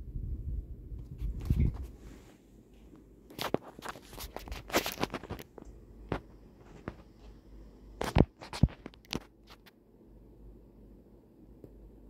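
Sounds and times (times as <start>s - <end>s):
ceiling fan hum: 0.0s - 12.0s.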